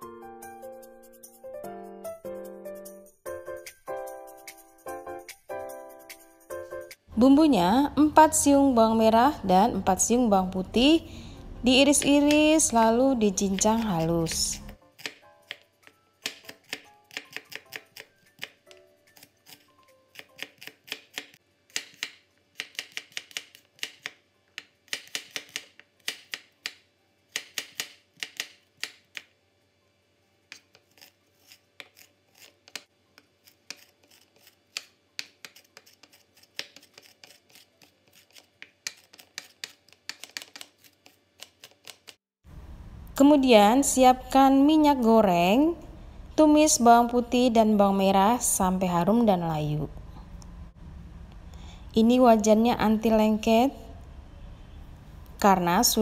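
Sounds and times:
knife chopping on cutting board: 11.9s - 12.7s, 13.4s - 29.3s, 30.5s - 42.1s.

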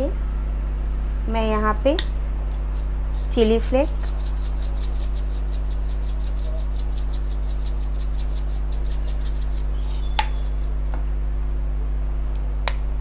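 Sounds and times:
steady low hum: 0.0s - 13.0s
spice jar shaking rattle: 2.8s - 10.9s.

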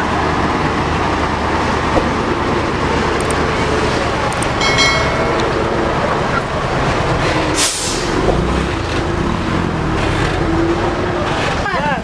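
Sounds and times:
diesel trucks driving past: 0.0s - 12.0s.

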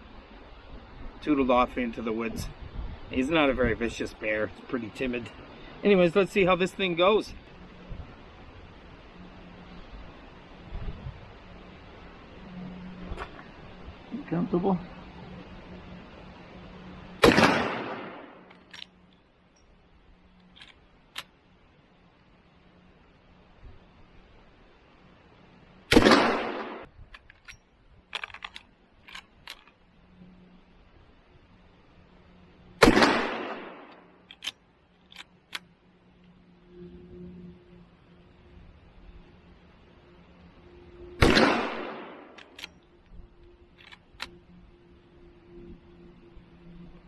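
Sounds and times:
rifle shot: 17.2s - 18.4s, 25.9s - 26.9s, 32.8s - 34.0s, 41.2s - 42.4s
rifle lever clicking and clacking: 27.2s - 29.7s, 34.2s - 35.6s.

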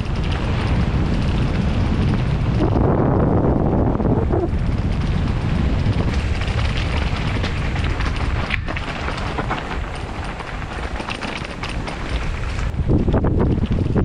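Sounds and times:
bike rattling and knocking: 0.0s - 14.0s
wind rush on microphone: 0.0s - 14.0s
tyres crunching on gravel: 4.7s - 14.0s.

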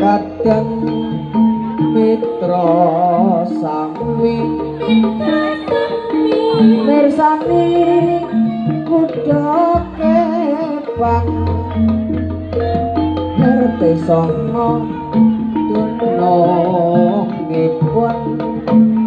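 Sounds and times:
hand drumming: 0.0s - 19.0s
metal gong-chimes and metallophones: 0.0s - 19.0s
wavering melody line: 0.0s - 19.0s
long low gong tone: 7.2s - 18.2s.

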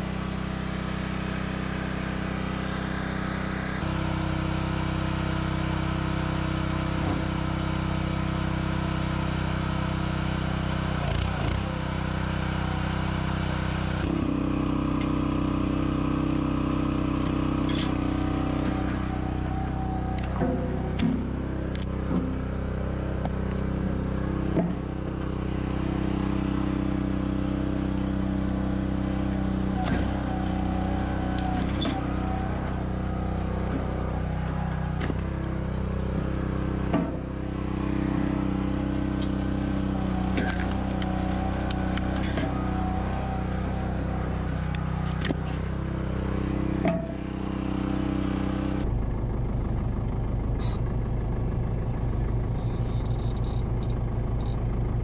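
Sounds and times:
firewood processor running: 0.0s - 55.0s
tractor engine running: 0.0s - 55.0s
logs splitting with sharp knocks: 19.8s - 22.4s, 23.2s - 24.9s, 35.0s - 35.5s, 40.3s - 43.2s.

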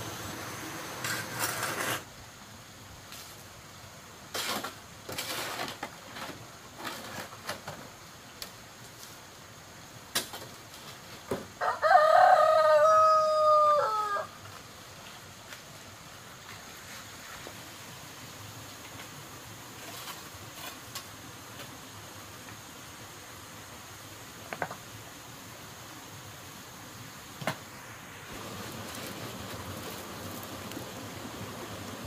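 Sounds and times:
rooster crowing: 11.6s - 14.4s.

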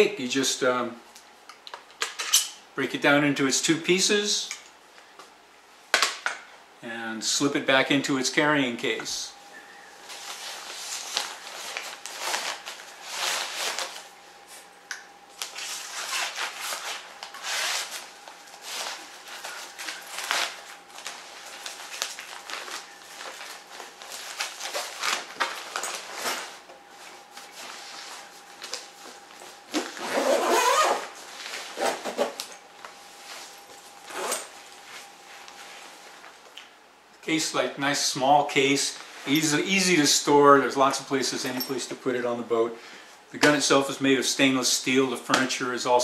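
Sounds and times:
nylon case rustling and scraping: 10.0s - 14.0s, 27.5s - 32.6s
zipper closing: 29.8s - 31.1s, 31.7s - 32.4s, 34.1s - 34.5s.

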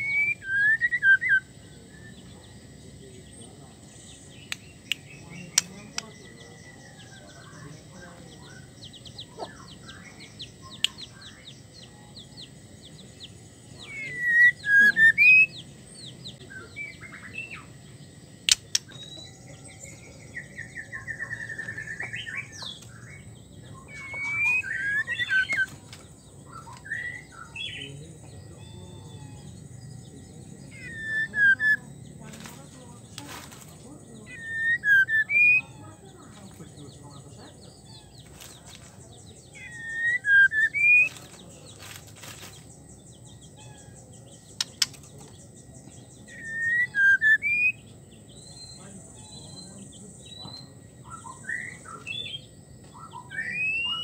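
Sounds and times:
bird whistled calls: 0.0s - 1.6s, 13.8s - 15.6s, 23.8s - 25.8s, 30.7s - 31.8s, 34.2s - 35.8s, 39.5s - 41.2s, 46.3s - 47.8s, 51.1s - 54.0s
fast rattling bird trill: 3.9s - 54.0s
sharp click: 18.5s - 19.0s.

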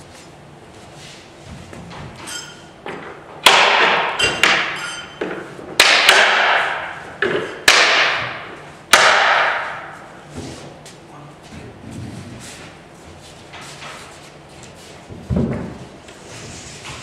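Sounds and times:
sharp knocks on plywood panel: 5.8s - 9.8s.

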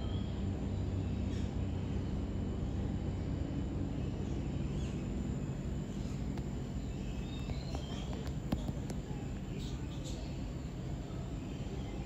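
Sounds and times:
faint bird chirps: 0.0s - 1.6s, 4.0s - 10.5s
low background rumble: 0.0s - 12.0s.

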